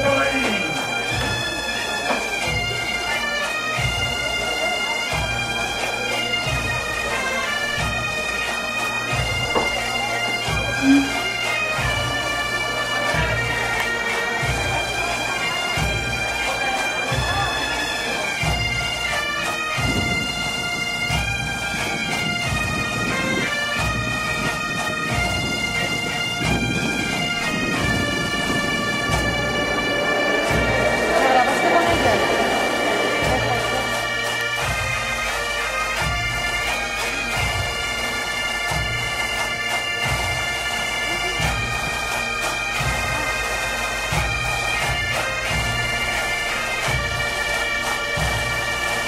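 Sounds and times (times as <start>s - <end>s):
bagpipe melody with drone: 0.0s - 49.0s
low regular beat: 26.6s - 34.8s.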